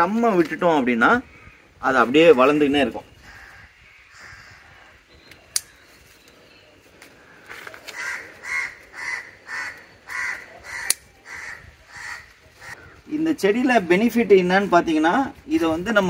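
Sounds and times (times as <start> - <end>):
crow cawing: 3.2 - 5.1, 7.2 - 13.1.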